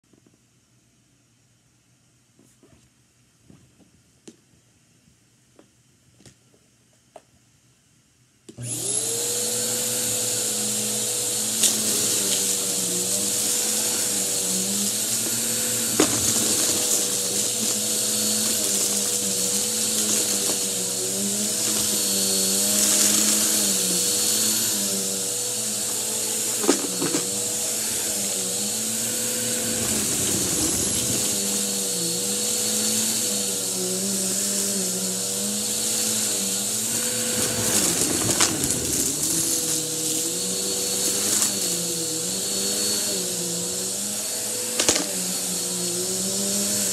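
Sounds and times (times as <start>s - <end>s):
vacuum cleaner running: 8.6s - 46.9s.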